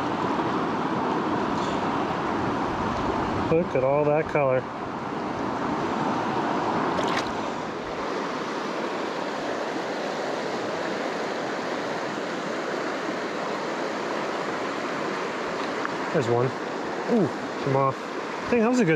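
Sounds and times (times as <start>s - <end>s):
fast-flowing creek rushing: 0.0s - 18.9s.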